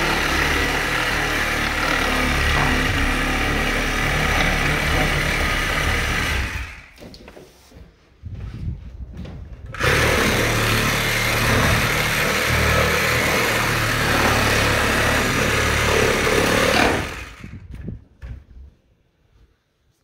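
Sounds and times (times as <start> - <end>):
reciprocating saw cutting plywood: 0.0 - 7.1, 9.7 - 17.7.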